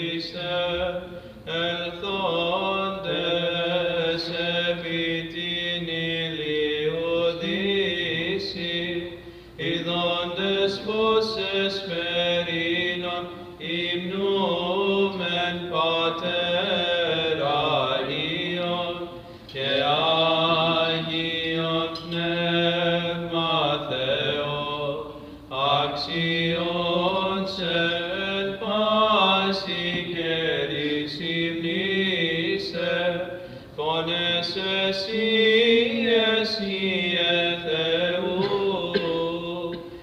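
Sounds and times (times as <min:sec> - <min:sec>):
low sung drone: 0:00.0 - 0:40.0
singers breathing: 0:09.2 - 0:09.6, 0:33.3 - 0:33.8.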